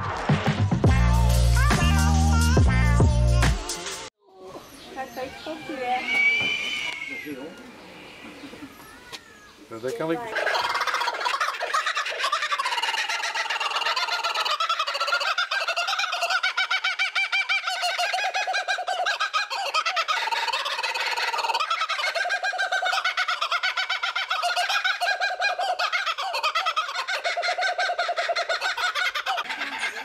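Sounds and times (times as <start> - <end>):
kookaburra cackling call: 8.2 - 30.0.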